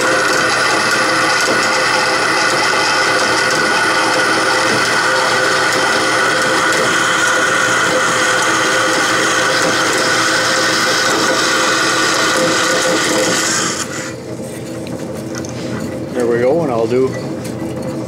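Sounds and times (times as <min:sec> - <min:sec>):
saw running free: 0:00.0 - 0:14.2
bandsaw cutting metal: 0:00.0 - 0:14.3.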